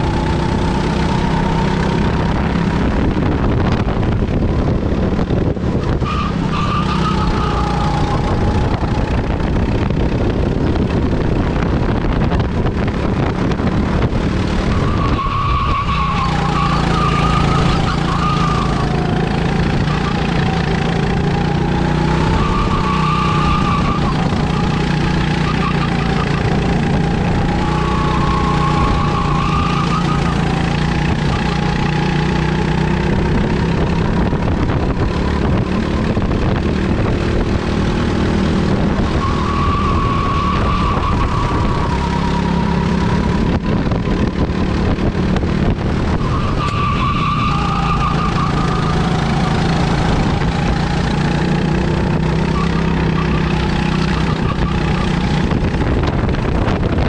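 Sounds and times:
go-kart engine revving: 0.0s - 57.0s.

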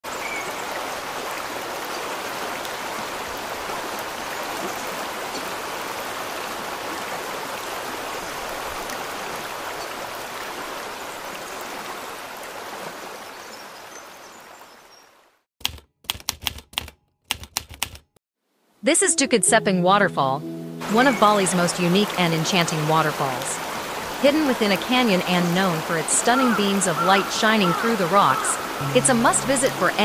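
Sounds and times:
waterfall rushing: 20.8s - 30.0s.

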